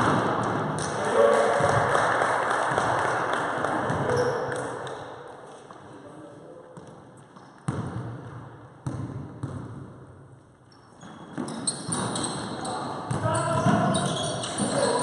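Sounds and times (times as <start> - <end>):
basketball bouncing on wooden floor: 6.8 - 10.0.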